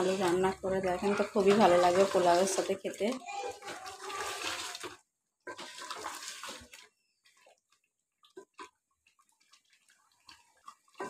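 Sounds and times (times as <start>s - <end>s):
curry frying and squelching: 0.0s - 11.0s
spatula scraping a pot: 0.1s - 2.7s, 3.4s - 7.5s.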